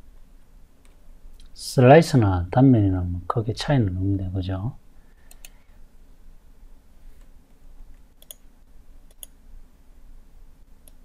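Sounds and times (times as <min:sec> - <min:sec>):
faint low hum: 0:00.0 - 0:11.0
mouse buttons clicking: 0:08.2 - 0:08.4.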